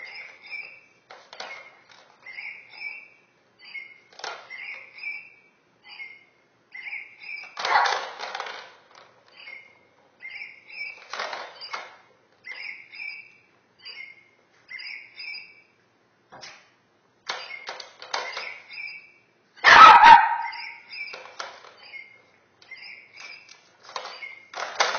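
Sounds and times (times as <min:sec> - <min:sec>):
plastic toy clattering and rattling: 0:00.0 - 0:02.3, 0:04.1 - 0:04.8, 0:07.4 - 0:09.6, 0:10.8 - 0:12.0, 0:17.3 - 0:18.7, 0:21.0 - 0:22.0, 0:22.6 - 0:24.9
high chirping squeaks: 0:00.0 - 0:08.4, 0:09.3 - 0:15.7, 0:17.3 - 0:24.6.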